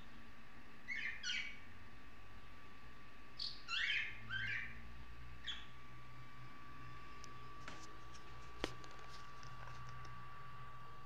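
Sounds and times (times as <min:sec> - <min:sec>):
faint high whine: 0:00.0 - 0:11.0
budgerigar chirping: 0:00.9 - 0:01.6, 0:03.4 - 0:04.8, 0:05.4 - 0:05.8.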